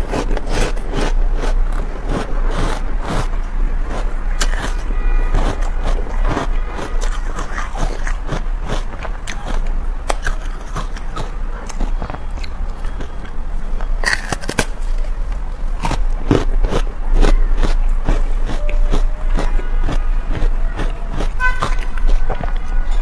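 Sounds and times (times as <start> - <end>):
ice crunching: 0.0 - 15.2.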